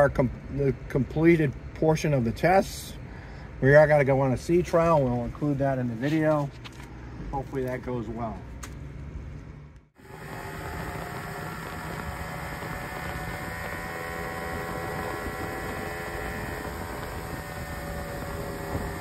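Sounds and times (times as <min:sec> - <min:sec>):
boat wake rushing: 0:10.0 - 0:19.0
outboard motor droning with whine: 0:10.0 - 0:19.0.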